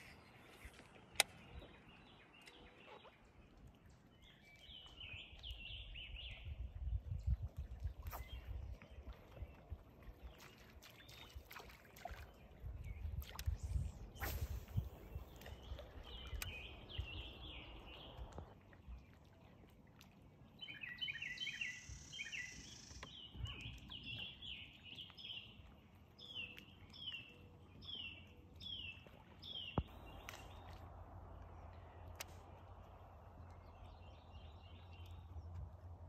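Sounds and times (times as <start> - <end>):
birds twittering: 20.6 - 25.5
songbirds whistling down-slurred notes: 20.6 - 25.5
faint low rumble: 29.8 - 36.0.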